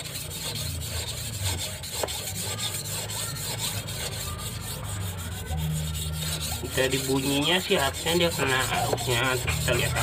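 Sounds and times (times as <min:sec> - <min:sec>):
blade scraping on whetstone: 0:00.0 - 0:10.0.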